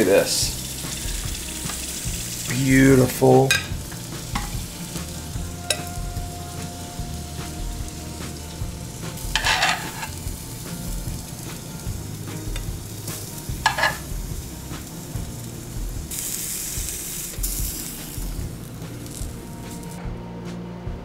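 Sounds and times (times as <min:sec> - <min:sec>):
food sizzling in frying pan: 0:00.0 - 0:20.0
utensil scraping pan: 0:09.3 - 0:10.2, 0:13.6 - 0:14.0.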